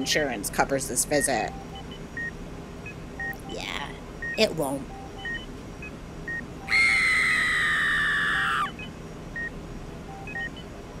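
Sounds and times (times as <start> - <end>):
faint electronic beeps: 1.0 - 6.7, 8.8 - 10.8
high-pitched cartoon scream: 6.7 - 8.8.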